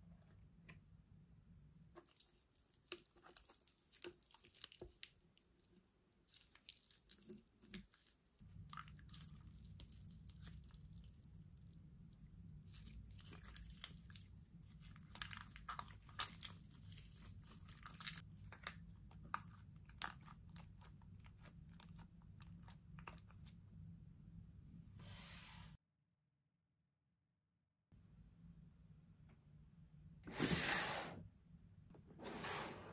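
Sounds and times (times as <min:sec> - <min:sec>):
slime crackling and popping: 0:12.7 - 0:23.4.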